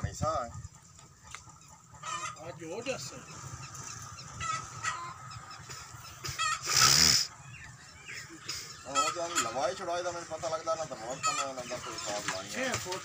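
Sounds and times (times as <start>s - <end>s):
fowl clucking and calling: 0.0s - 13.0s
loud hiss: 6.6s - 7.3s.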